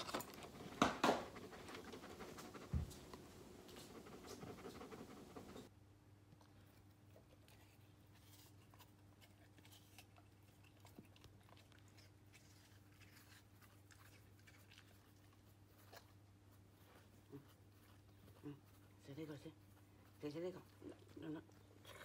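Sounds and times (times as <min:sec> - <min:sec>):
steady low hum: 0:00.3 - 0:05.7.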